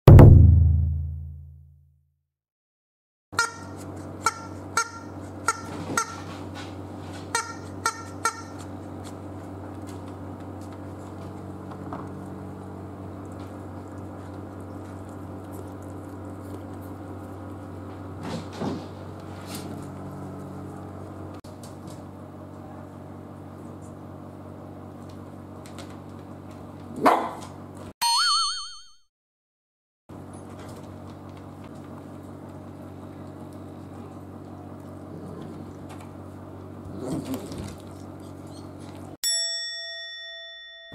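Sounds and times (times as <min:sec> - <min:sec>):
dog whining: 0:36.9 - 0:39.0.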